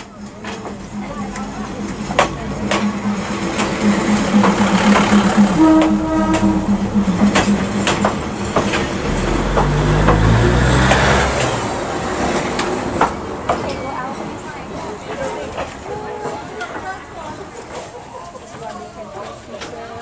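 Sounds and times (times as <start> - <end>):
wheels clicking over rails: 0.0 - 15.8
railcar engine droning: 0.0 - 18.1.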